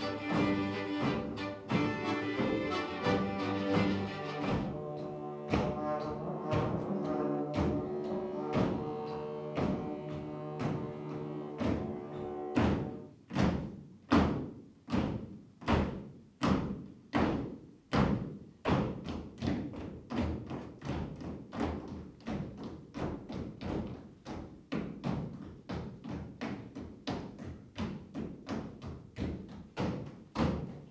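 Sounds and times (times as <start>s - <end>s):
accordion and brass folk tune: 0.0s - 13.1s
dancers stamping on stage floor: 0.0s - 30.9s
steady knocking beat: 0.0s - 30.9s.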